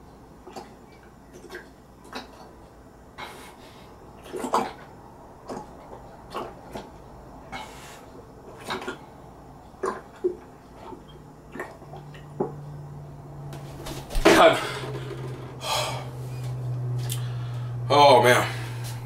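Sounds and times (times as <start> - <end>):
liquid glugging in a jug: 0.4 - 2.6, 4.1 - 7.0, 8.5 - 9.2, 9.8 - 12.6
person gulping and swallowing: 4.2 - 7.0, 9.8 - 12.6.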